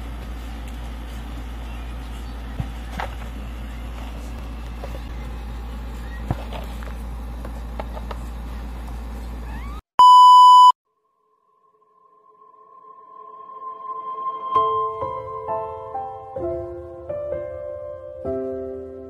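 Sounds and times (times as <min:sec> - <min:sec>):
loud electronic beep: 0:09.5 - 0:10.8.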